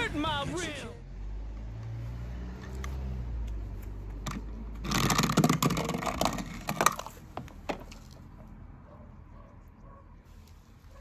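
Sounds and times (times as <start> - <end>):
toy car rattling on wooden sticks: 4.2 - 8.3.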